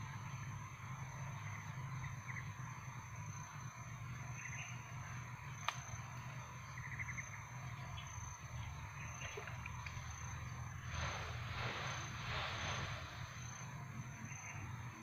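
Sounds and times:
high insect drone: 0.0s - 15.0s
low steady hum: 0.0s - 15.0s
chirps: 4.2s - 15.0s.

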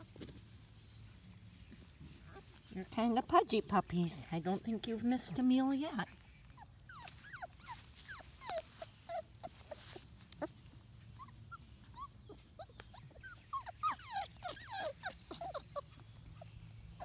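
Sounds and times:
puppies whimpering and squeaking: 6.1s - 17.0s.

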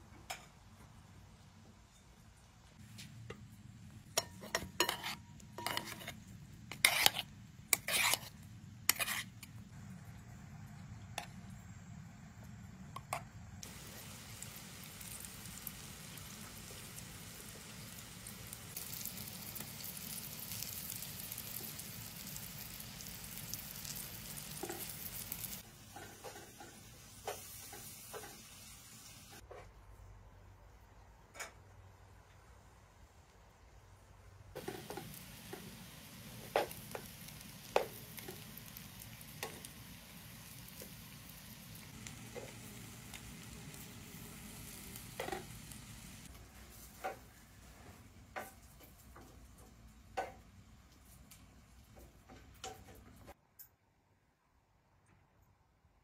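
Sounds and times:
food frying in hot oil: 13.6s - 29.4s, 34.6s - 53.0s.

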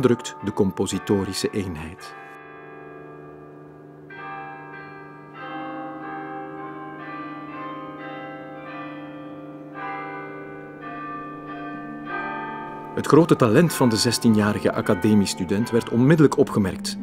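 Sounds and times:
tuned bells ringing: 4.2s - 17.0s
steady low tone: 10.4s - 17.0s.

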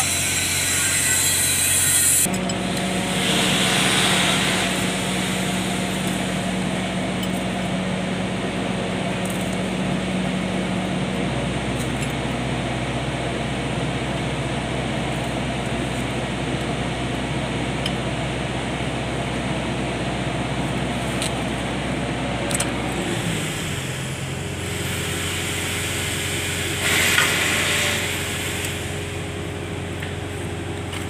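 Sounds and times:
machine humming: 0.0s - 11.6s.

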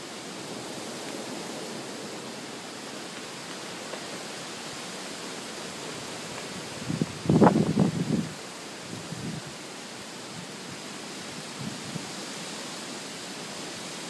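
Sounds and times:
storm wind rushing through trees: 0.0s - 14.0s
wind buffeting microphone: 6.5s - 9.6s.

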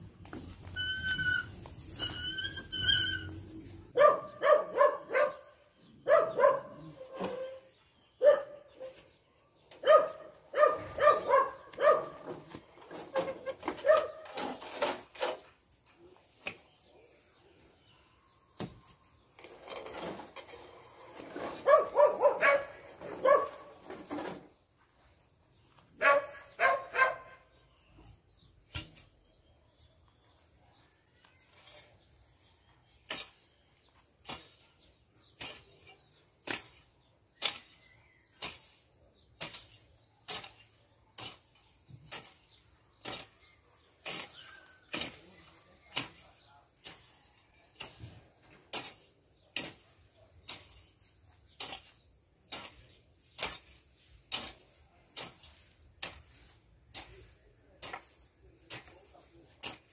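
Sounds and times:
hoe chopping into dry soil: 33.0s - 47.2s, 47.8s - 59.9s.

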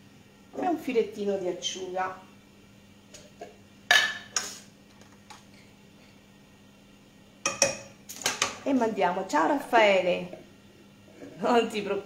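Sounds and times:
faint steady hum: 0.0s - 12.0s
utensil clinking against dishes: 7.5s - 8.5s.

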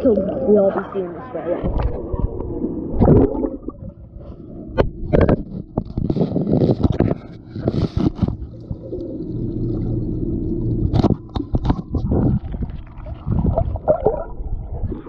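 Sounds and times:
underwater gurgling water: 0.0s - 15.0s
steady low hum: 1.5s - 12.8s.

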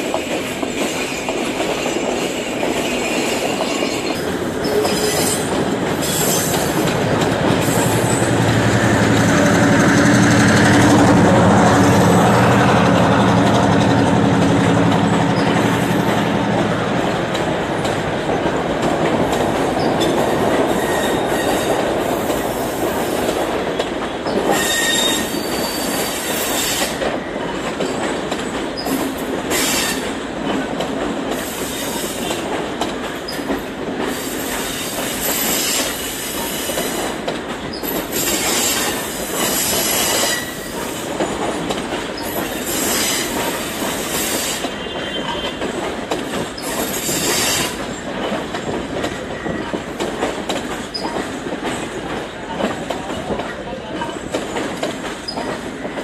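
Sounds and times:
diesel locomotive engine: 0.0s - 56.0s
train carriages rumbling: 0.0s - 56.0s
wheel squeal: 24.3s - 26.8s, 39.5s - 40.7s.

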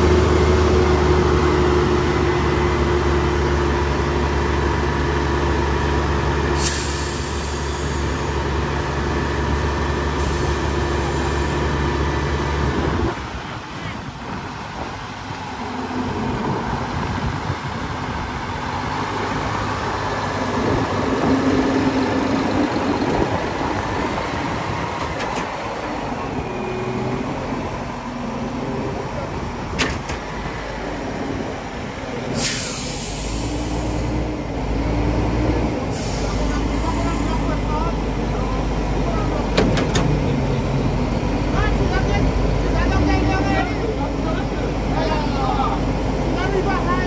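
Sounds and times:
diesel truck engine running: 0.0s - 47.0s
loud air hissing: 6.5s - 8.4s, 10.2s - 11.5s, 32.2s - 34.3s, 35.9s - 37.6s.

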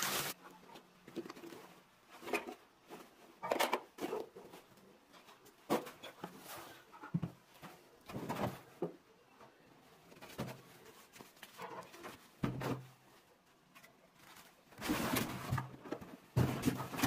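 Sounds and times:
cardboard packaging rustling: 0.0s - 0.4s.

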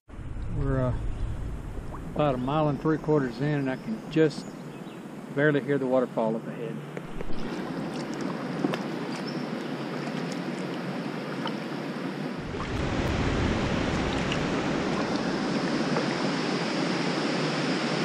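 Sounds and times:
low rumble: 0.1s - 4.2s, 12.4s - 16.5s
waterfall rushing hiss: 12.4s - 18.0s.

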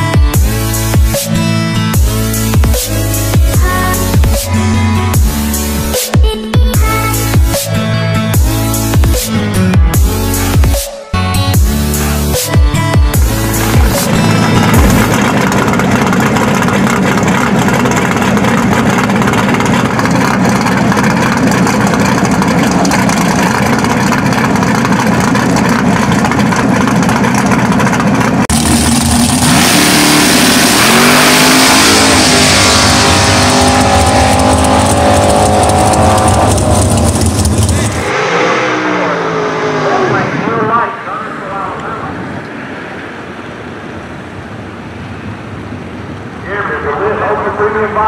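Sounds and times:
drag race car engine revving: 13.1s - 43.4s.

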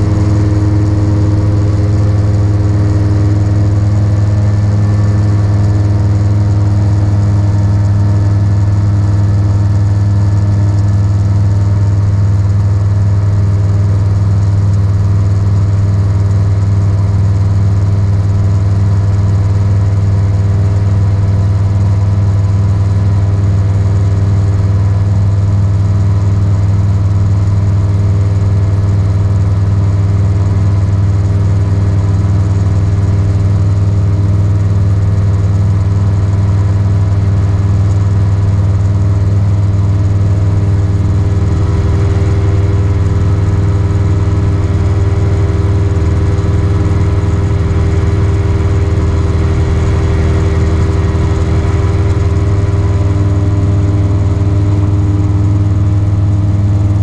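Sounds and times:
aircraft engine and propeller droning: 0.0s - 57.0s.

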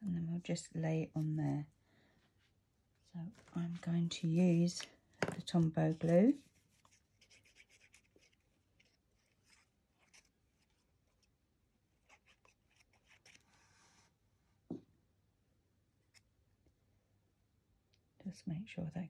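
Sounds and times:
paper rustling: 3.3s - 11.3s.

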